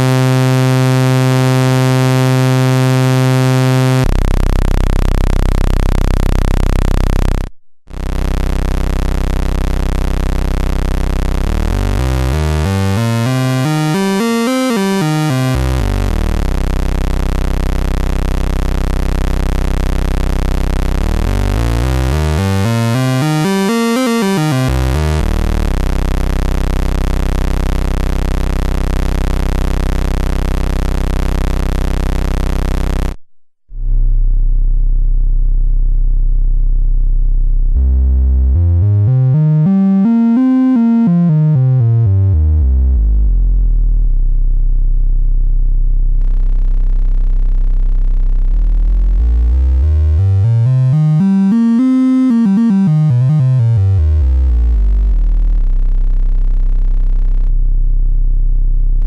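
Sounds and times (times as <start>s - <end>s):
buzzy synthesizer drone: 0.0s - 33.2s, 33.8s - 59.0s
bright synth sweep: 11.7s - 16.4s, 21.1s - 25.2s.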